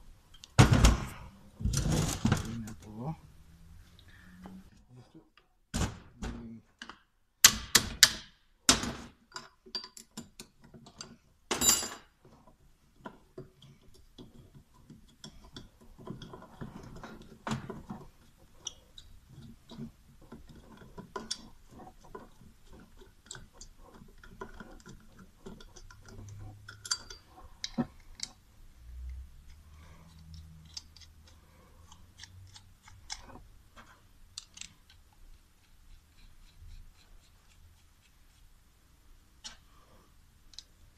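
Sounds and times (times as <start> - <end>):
metal tools clinking and knocking: 9.3 - 12.1, 24.2 - 27.9.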